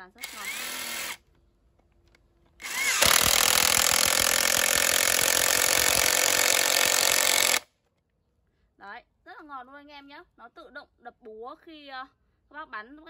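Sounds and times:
impact wrench motor whirring: 0.0s - 1.2s, 2.6s - 7.7s
impact wrench hammering: 2.6s - 7.6s.

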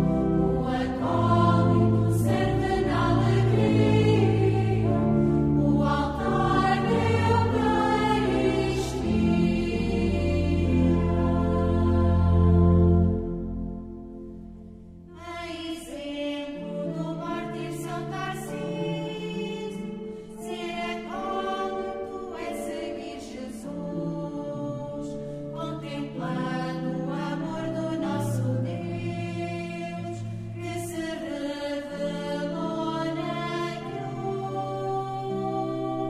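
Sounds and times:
choir singing sustained notes: 0.0s - 36.0s.

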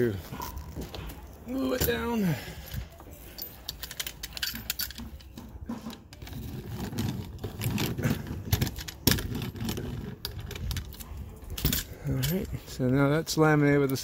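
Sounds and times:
roller rolling over wood: 5.3s - 10.9s.

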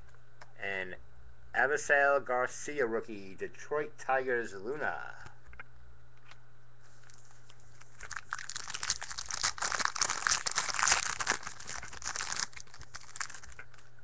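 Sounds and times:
wrapper tearing and crinkling: 7.8s - 13.9s.

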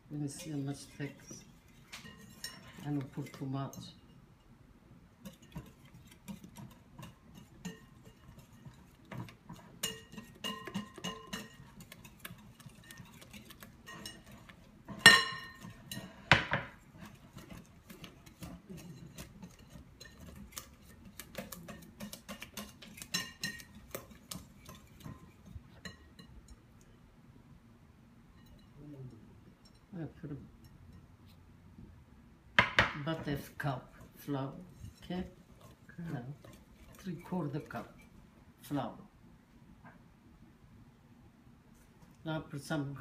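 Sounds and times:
whisk clicking against glass bowl: 5.2s - 26.6s.

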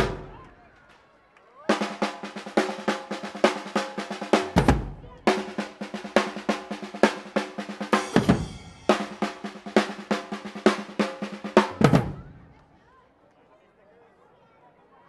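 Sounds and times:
marching band drums playing: 0.0s - 0.5s, 1.7s - 12.5s
deep bass drum boom: 4.5s - 5.4s.

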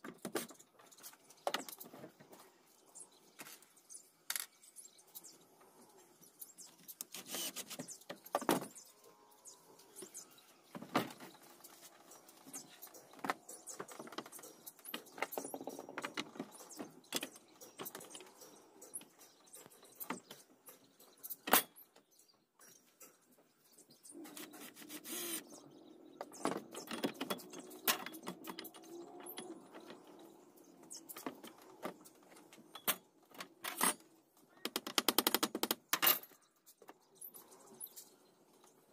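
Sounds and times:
cordless drill driving screws: 7.2s - 7.6s, 24.8s - 25.4s.

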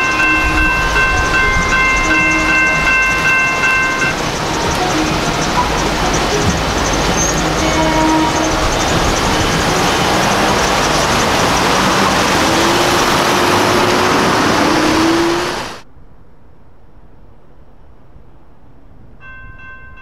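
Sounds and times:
cars driving past: 0.0s - 15.8s
faint rising engine tone: 0.0s - 16.4s.

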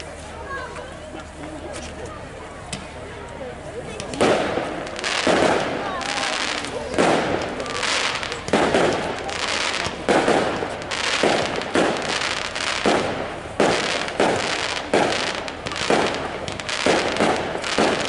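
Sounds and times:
fireworks bangs: 4.0s - 18.0s.

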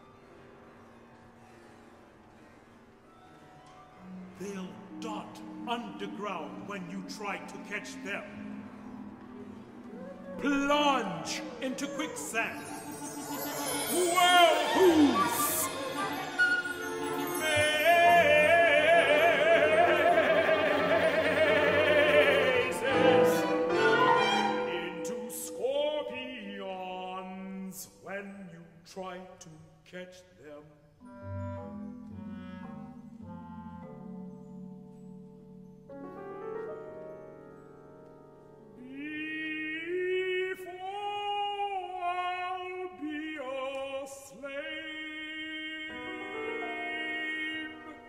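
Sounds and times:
chamber orchestra playing: 3.9s - 27.1s, 31.0s - 36.4s, 38.5s - 48.0s
solo singing voice: 38.8s - 48.0s.

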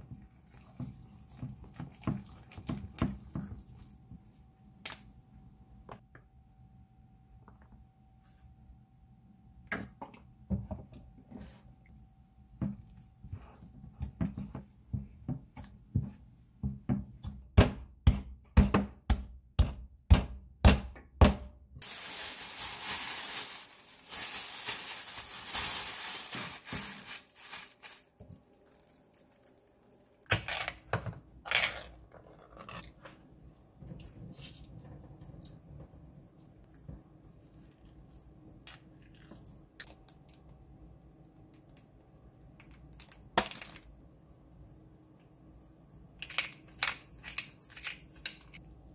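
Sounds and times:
plastic bag rustling: 21.8s - 30.2s.

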